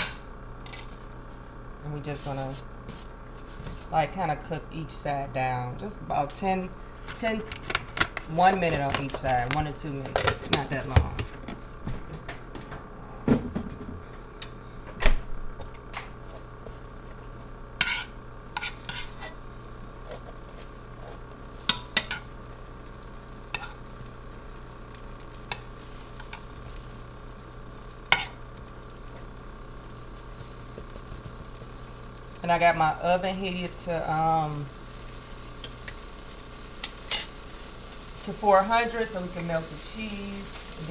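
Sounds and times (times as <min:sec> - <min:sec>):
butter sizzling in skillet: 0:06.1 - 0:11.9, 0:15.6 - 0:40.9
utensil scraping pan: 0:17.8 - 0:19.4, 0:23.5 - 0:23.8.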